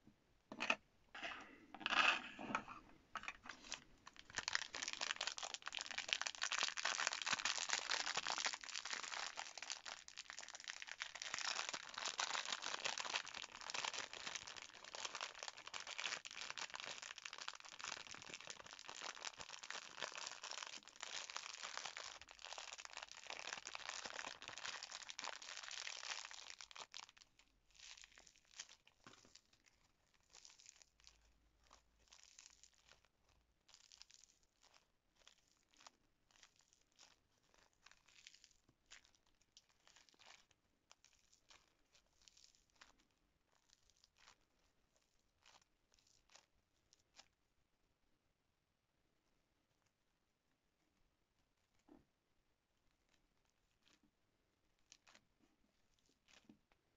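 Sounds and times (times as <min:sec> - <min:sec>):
plastic wrap crinkling: 0:03.2 - 0:47.3.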